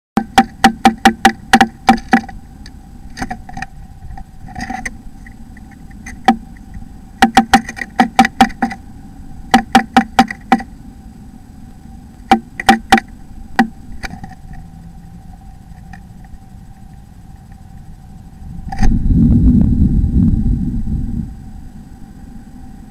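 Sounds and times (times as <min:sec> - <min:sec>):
bird pecking at wood: 0:00.2 - 0:10.7, 0:12.2 - 0:14.6
faint steady whine: 0:00.2 - 0:22.9.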